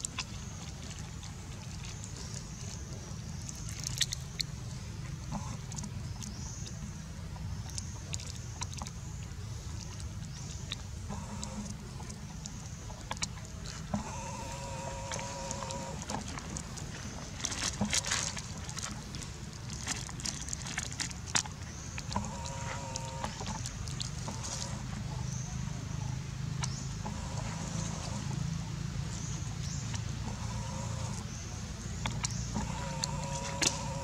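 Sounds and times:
plastic bag crinkling: 15.2s - 24.7s.

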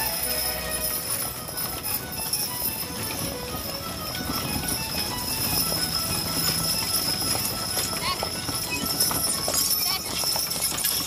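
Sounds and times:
horse hooves clip-clopping on dirt: 0.0s - 11.0s.

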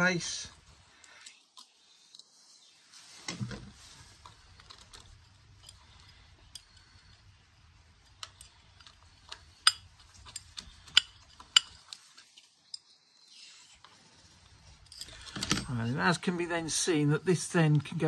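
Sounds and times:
small metal parts clicking: 4.2s - 7.3s, 7.9s - 13.0s, 14.4s - 15.8s.

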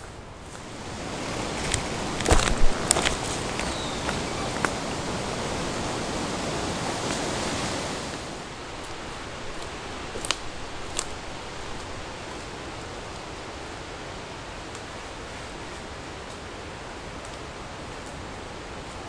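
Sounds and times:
footsteps on forest floor: 0.0s - 5.1s, 8.1s - 13.3s
rushing woodland noise: 0.0s - 19.0s
twigs snapping underfoot: 1.6s - 4.8s, 8.8s - 12.5s.

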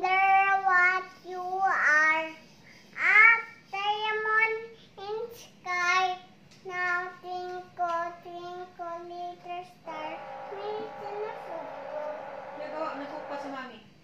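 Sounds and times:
girl singing a simple tune: 0.0s - 2.4s, 3.0s - 12.1s
woman's voice: 12.6s - 13.8s.

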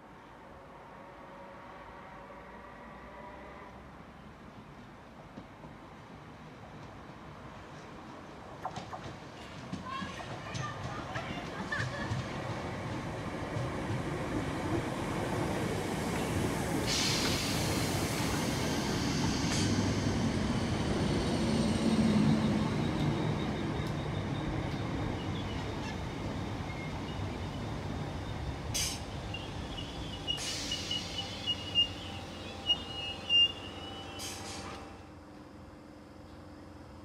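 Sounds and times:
electric train rumble: 4.9s - 37.0s
wheels squealing on rails: 16.2s - 35.0s.

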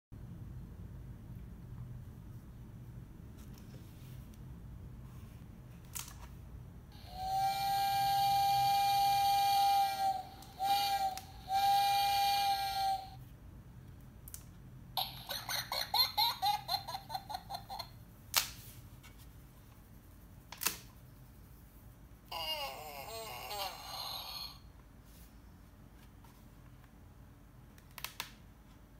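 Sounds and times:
electronic steam whistle blasts: 7.0s - 13.2s.

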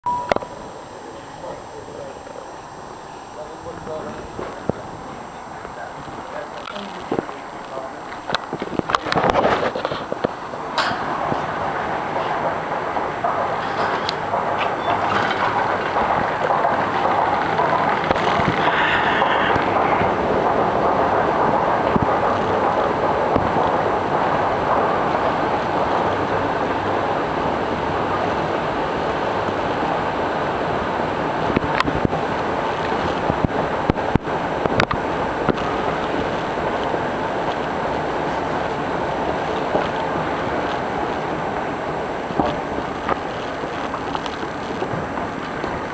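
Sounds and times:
station concourse and escalator noise: 0.0s - 45.9s
steady rushing noise: 0.0s - 45.9s
sharp clicks and knocks: 8.1s - 25.0s.

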